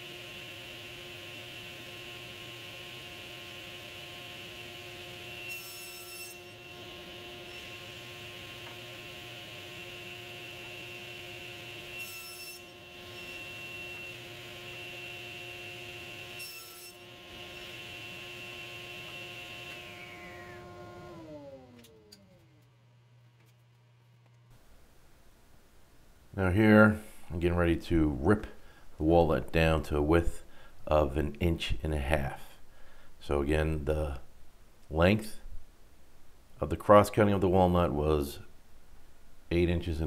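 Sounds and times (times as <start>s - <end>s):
saw cutting through wood: 0.0s - 22.2s
table saw running: 0.0s - 22.7s
saw blade spinning down: 16.4s - 22.6s.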